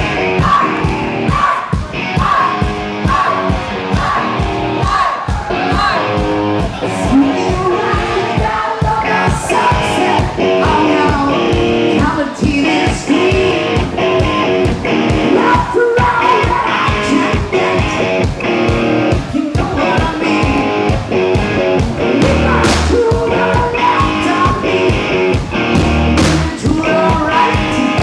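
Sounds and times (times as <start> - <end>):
driving drum beat: 0.0 - 28.0
electric guitar: 0.0 - 28.0
person singing: 6.8 - 18.2, 19.1 - 20.9, 22.0 - 25.4, 26.2 - 28.0.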